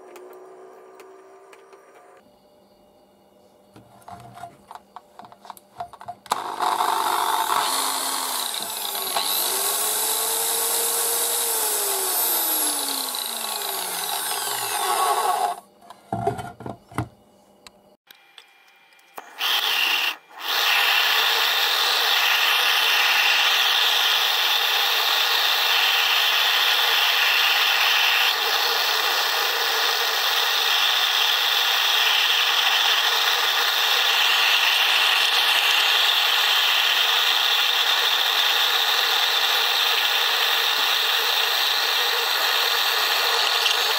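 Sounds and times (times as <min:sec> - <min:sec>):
blender motor whining: 0:06.3 - 0:15.7, 0:19.2 - 0:43.9.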